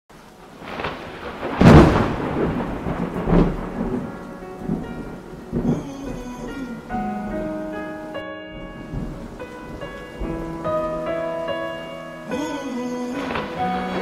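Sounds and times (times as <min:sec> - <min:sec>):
steady rain: 0:00.1 - 0:14.0
rolling thunder: 0:00.2 - 0:14.0
loud thunder clap: 0:00.3 - 0:14.0
soft music notes: 0:03.0 - 0:14.0.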